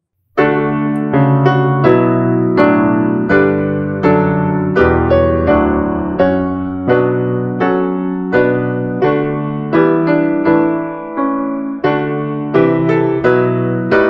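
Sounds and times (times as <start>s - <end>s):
piano playing hymn chords: 0.4s - 14.0s.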